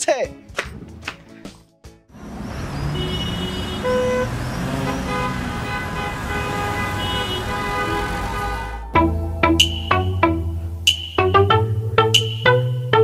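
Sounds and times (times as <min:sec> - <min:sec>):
passing vehicles: 0:02.1 - 0:11.3
engine revving: 0:02.2 - 0:10.7
car horns honking: 0:02.2 - 0:11.4.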